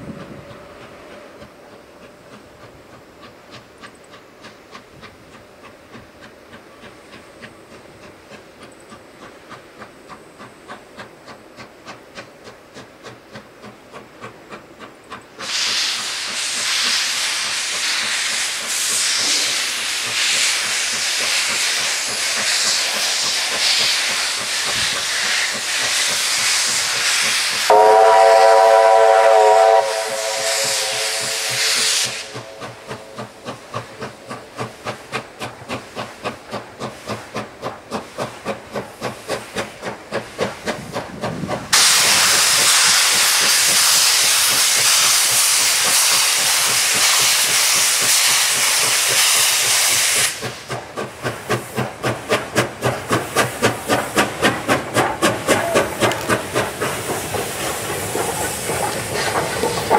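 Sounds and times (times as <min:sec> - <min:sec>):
steam locomotive rhythmic beat: 0:00.0 - 0:59.9
loud steam hiss: 0:05.6 - 0:59.9
steam whistle: 0:27.7 - 0:33.2.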